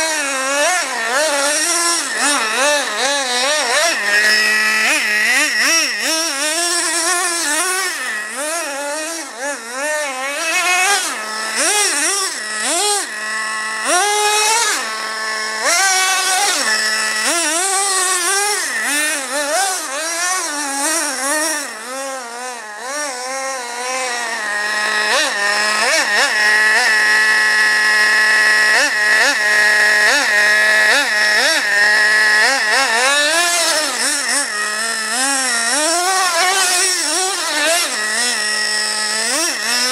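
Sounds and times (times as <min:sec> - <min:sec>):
model car engine revving: 0:00.0 - 0:39.9.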